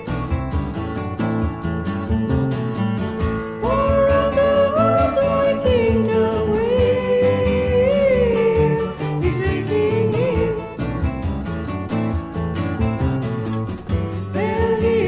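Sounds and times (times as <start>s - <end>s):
acoustic guitar: 0.0s - 15.0s
quick steady beat: 0.0s - 15.0s
person singing: 3.6s - 10.9s, 14.2s - 15.0s.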